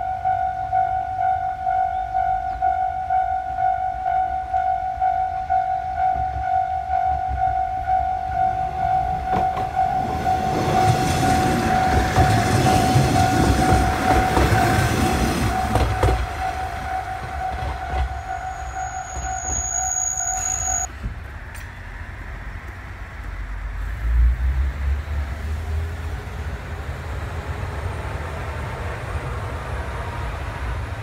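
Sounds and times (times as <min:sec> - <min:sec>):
level-crossing warning bell: 0:00.0 - 0:20.9
diesel railcar rumbling past: 0:00.0 - 0:31.0
train wheels knocking on rail joints: 0:09.1 - 0:19.6.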